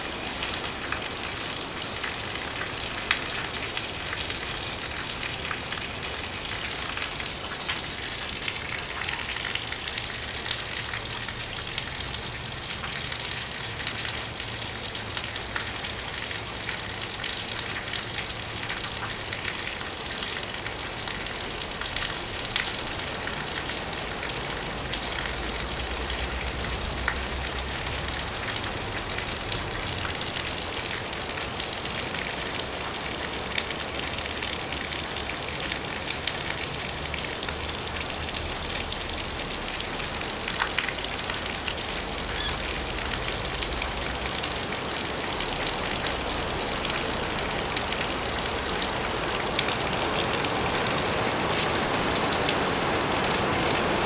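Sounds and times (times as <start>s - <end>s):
steady rain hiss: 0.0s - 54.0s
water pouring off a roof edge: 0.0s - 54.0s
sharp drip clicks: 40.5s - 44.6s.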